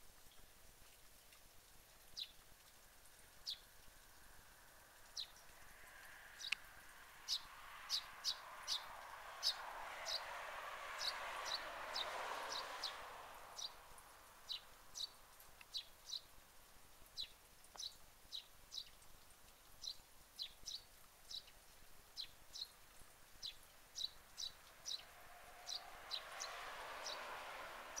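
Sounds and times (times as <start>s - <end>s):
soft rush of noise: 0.0s - 28.0s
sparrow chirping: 7.2s - 10.3s, 14.4s - 16.3s, 23.4s - 27.2s.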